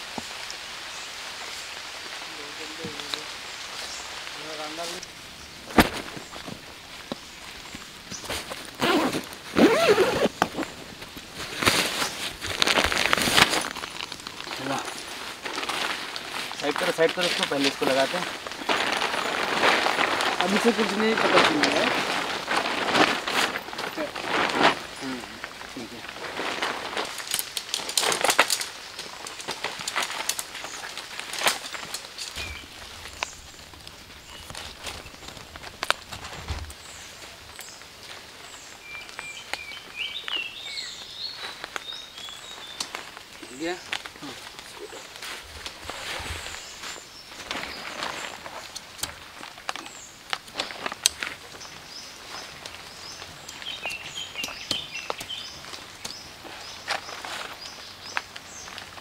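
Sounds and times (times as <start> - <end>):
tent fabric rustling: 0.0 - 59.0
tent poles clicking and rattling: 4.4 - 59.0
birds chirping: 28.6 - 50.4, 51.2 - 59.0.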